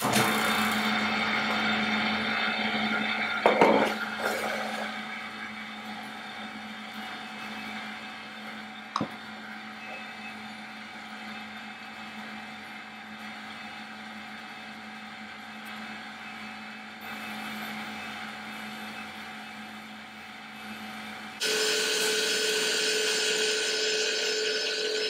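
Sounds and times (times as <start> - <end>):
edge burnisher motor humming: 21.3 - 25.0.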